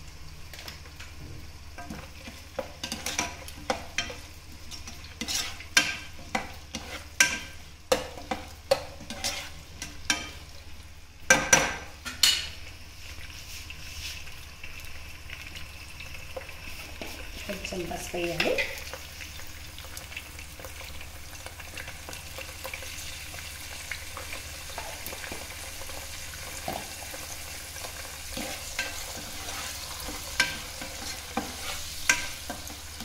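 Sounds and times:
light sizzle: 0:00.0 - 0:33.0
spatula scraping a pot: 0:02.2 - 0:10.3, 0:28.3 - 0:32.8.

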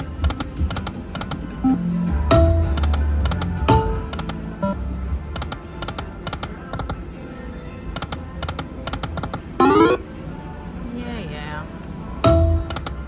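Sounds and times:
slot machine electronic clicks: 0:07.9 - 0:10.1.

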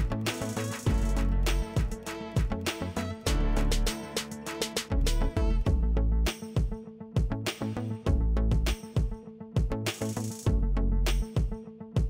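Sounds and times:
bass line: 0:00.0 - 0:06.3, 0:07.7 - 0:08.8, 0:10.5 - 0:11.4.

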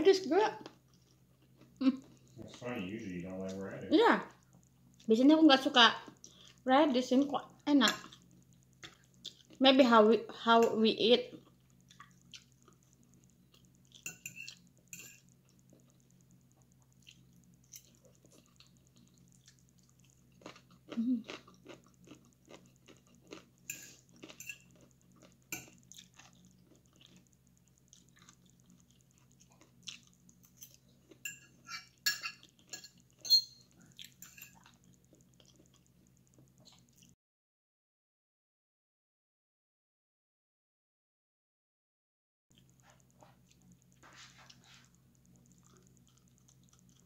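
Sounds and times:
faint low hum: 0:00.0 - 0:37.2, 0:42.5 - 0:47.0
chewing: 0:00.6 - 0:02.6, 0:07.8 - 0:09.6, 0:11.3 - 0:37.2, 0:42.5 - 0:47.0
fork scraping on ceramic plate: 0:14.0 - 0:15.2, 0:23.7 - 0:24.7, 0:31.2 - 0:33.6, 0:34.2 - 0:34.6.

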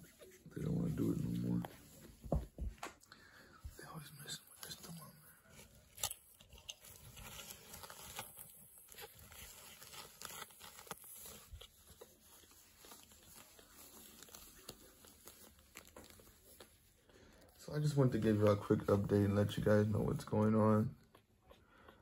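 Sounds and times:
puppy pad crinkling: 0:04.5 - 0:21.3.

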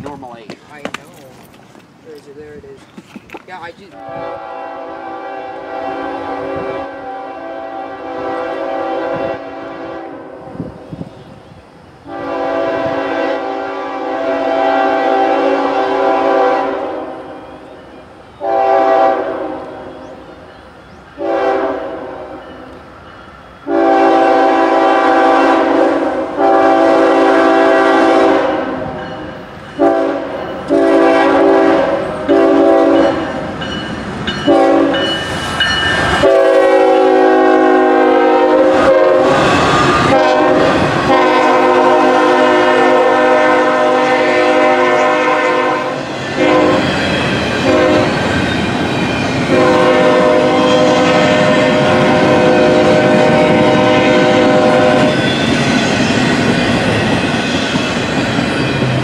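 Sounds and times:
passing train rumble: 0:00.0 - 0:59.0
train air horn blasts: 0:04.0 - 0:10.9, 0:12.0 - 0:17.5, 0:18.4 - 0:20.1, 0:21.2 - 0:22.7, 0:23.6 - 0:33.5, 0:34.4 - 0:35.2, 0:36.2 - 0:47.0, 0:47.6 - 0:48.2, 0:49.5 - 0:55.4.

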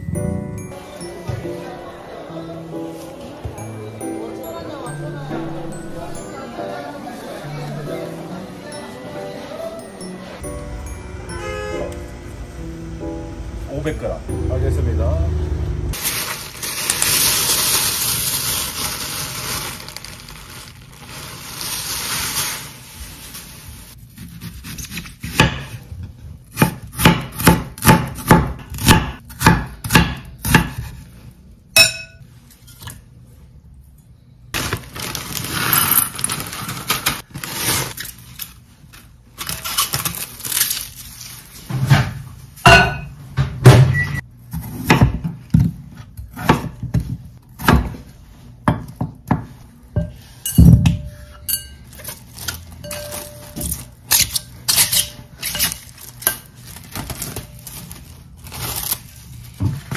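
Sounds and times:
plastic bag crinkling: 0:16.0 - 0:24.0, 0:34.6 - 0:41.6, 0:55.7 - 0:59.6.

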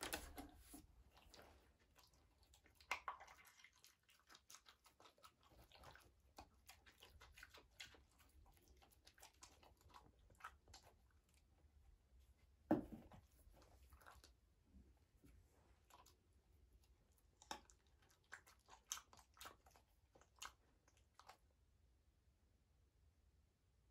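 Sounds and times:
dogs chewing berries: 0:00.0 - 0:11.5, 0:17.0 - 0:21.5.

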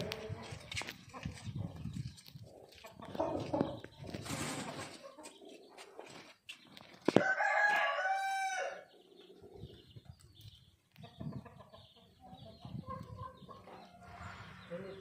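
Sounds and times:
scattered bird sounds: 0:00.0 - 0:15.0
rooster crowing: 0:07.2 - 0:08.9.

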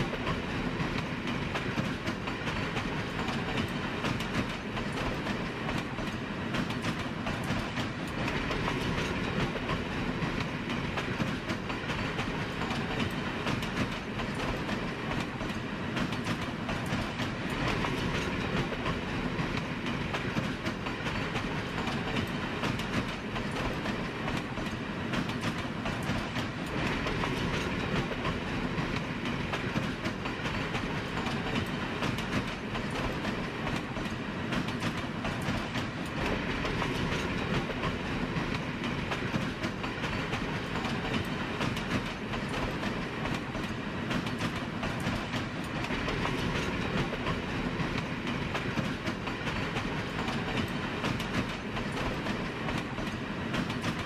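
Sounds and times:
train rumble: 0:00.0 - 0:54.0
wheels clicking over rail joints: 0:00.1 - 0:54.0.

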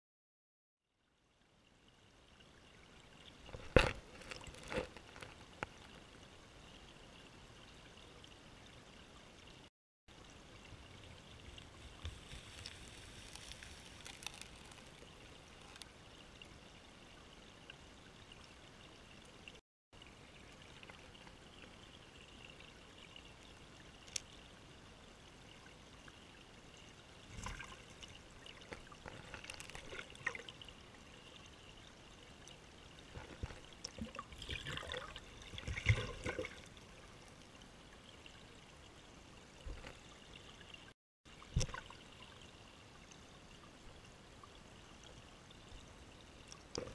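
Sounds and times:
muffled underwater water rush: 0:10.3 - 0:17.1, 0:25.7 - 0:42.6.

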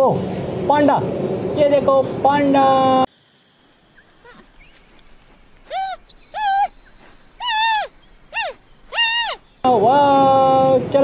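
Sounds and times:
panda bleating calls: 0:07.4 - 0:09.4.

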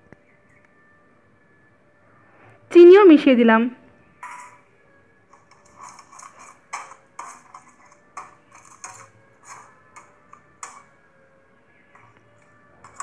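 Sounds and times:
metal spatula scraping a pan: 0:04.2 - 0:04.6, 0:05.4 - 0:10.9, 0:12.0 - 0:13.0.

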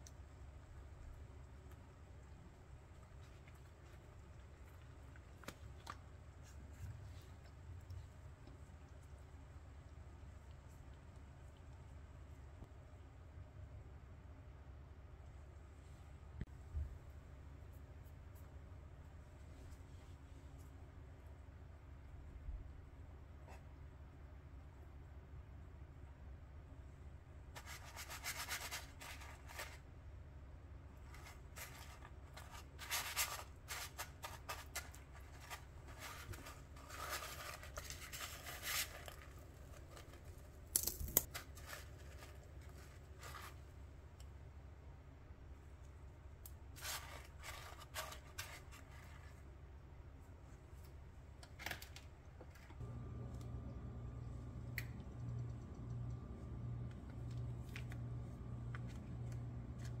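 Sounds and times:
low steady hum: 0:00.0 - 1:00.0
chips crunching and rustling: 0:31.1 - 0:43.6.

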